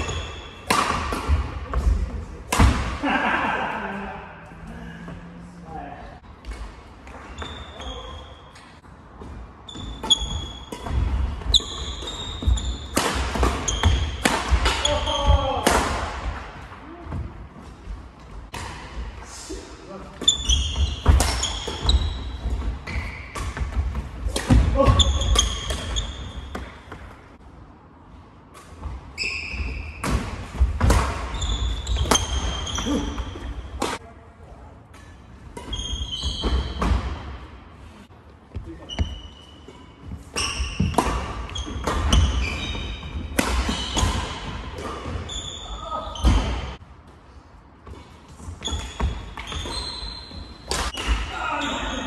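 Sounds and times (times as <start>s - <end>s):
racket hitting shuttlecock: 0.0s - 3.0s, 9.8s - 16.6s, 20.2s - 27.0s, 29.9s - 34.0s, 40.2s - 45.3s, 50.6s - 51.4s
shoes squeaking on wooden floor: 7.2s - 8.7s, 9.6s - 12.9s, 20.2s - 23.8s, 35.6s - 36.9s, 38.5s - 44.5s, 48.6s - 50.8s.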